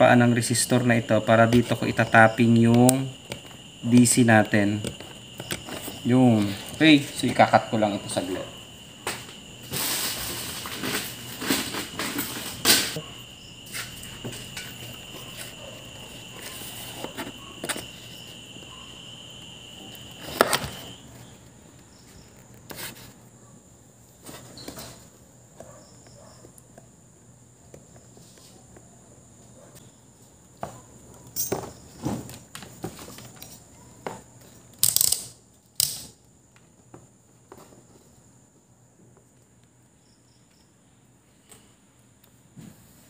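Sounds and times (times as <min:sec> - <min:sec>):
hand tools clicking and scraping: 0:09.1 - 0:18.0.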